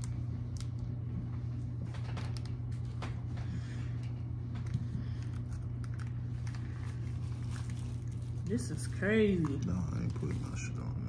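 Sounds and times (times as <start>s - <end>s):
steady low hum: 0.0s - 11.0s
plastic wrapper crinkling: 5.2s - 10.9s.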